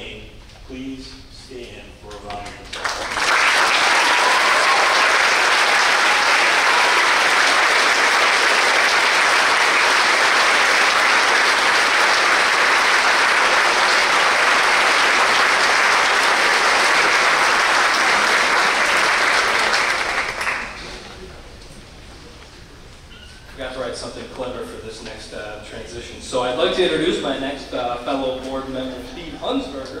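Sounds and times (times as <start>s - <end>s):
large audience applauding: 2.7s - 21.1s.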